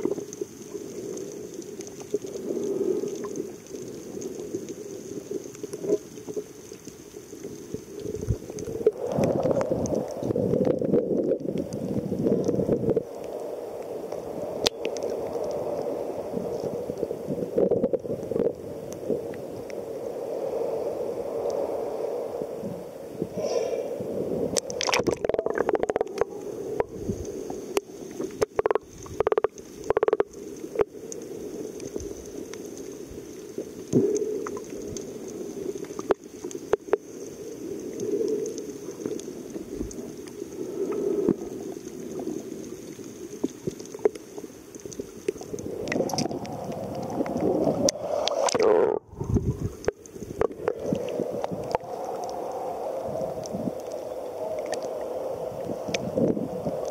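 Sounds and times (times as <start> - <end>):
sea water sloshing and gurgling: 0.0 - 56.9
muffled underwater sound: 24.5 - 31.2, 31.8 - 56.9.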